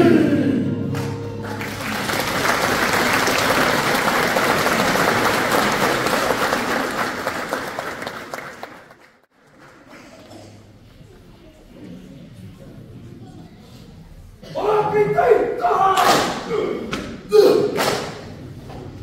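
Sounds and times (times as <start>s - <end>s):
audience applauding: 1.0s - 10.1s.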